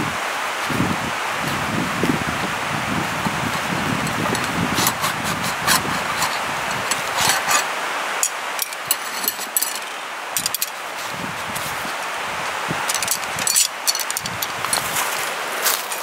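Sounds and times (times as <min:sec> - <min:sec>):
steady hiss: 0:00.0 - 0:16.0
fabric brushing: 0:02.9 - 0:07.7, 0:10.9 - 0:12.0
metal tool clicks and rattles: 0:03.6 - 0:10.8, 0:12.8 - 0:14.9.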